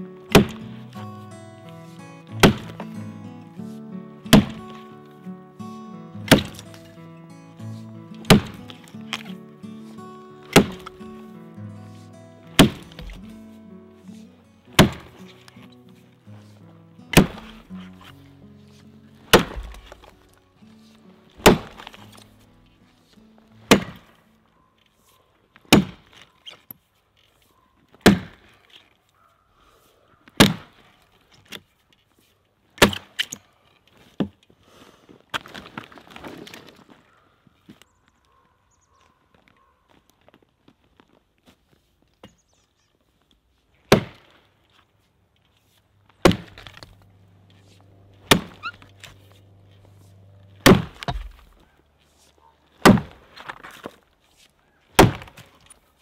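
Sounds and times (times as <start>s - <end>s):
background music: 0.0s - 24.2s
axe chopping log: 0.3s - 0.8s, 2.3s - 3.0s, 4.3s - 4.9s, 6.2s - 6.9s, 8.1s - 9.3s, 10.4s - 11.0s, 12.5s - 13.5s, 14.7s - 15.6s, 17.1s - 18.2s, 19.2s - 20.3s, 21.3s - 22.4s, 23.6s - 24.2s, 25.7s - 26.2s, 28.0s - 28.6s, 30.4s - 30.9s, 32.8s - 33.4s, 43.9s - 44.4s, 46.1s - 49.4s, 50.0s - 51.7s, 52.7s - 55.8s.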